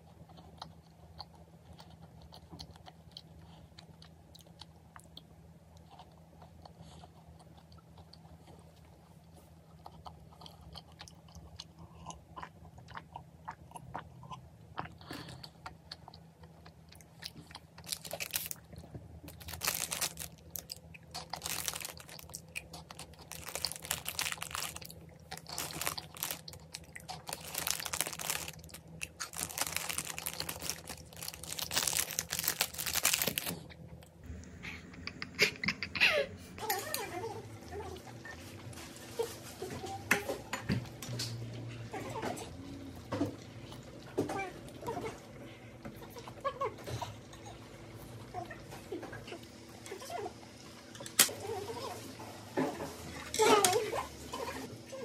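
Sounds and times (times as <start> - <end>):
chewing crunchy snack: 0.0 - 34.4
crunching and rustling: 15.0 - 34.2
plastic snack bag handled: 17.8 - 18.6, 19.3 - 33.7.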